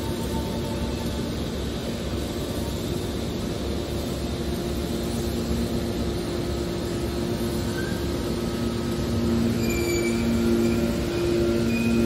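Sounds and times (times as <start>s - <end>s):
high squeal: 7.6s - 8.1s, 9.3s - 12.0s.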